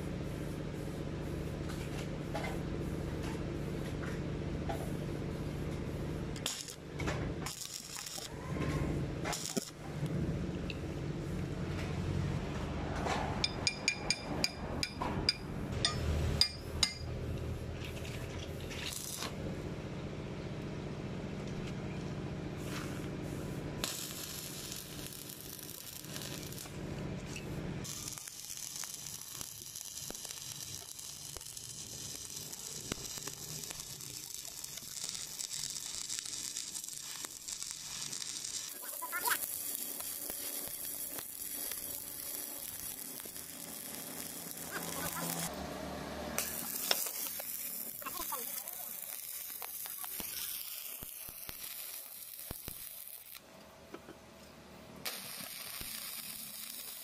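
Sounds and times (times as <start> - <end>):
welding arc crackling: 6.1 - 8.3, 9.3 - 9.8, 18.6 - 19.4, 23.8 - 53.4, 55.0 - 57.0.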